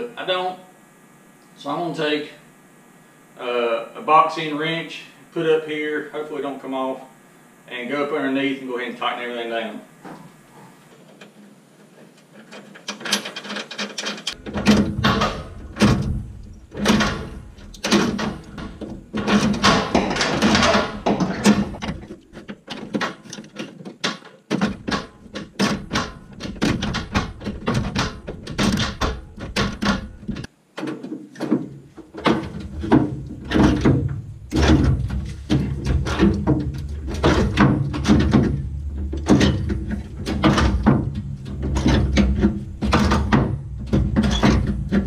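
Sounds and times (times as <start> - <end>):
scraping and handling noise: 9.9 - 45.0.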